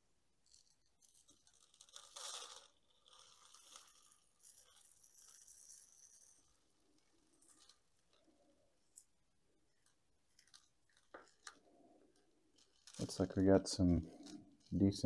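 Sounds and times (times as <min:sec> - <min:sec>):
potting soil crunching and scraping: 0:12.5 - 0:15.0.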